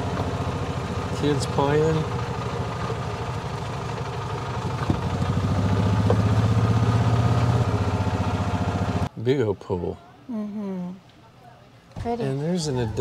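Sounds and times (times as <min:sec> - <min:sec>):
golf cart engine running: 0:00.0 - 0:09.1.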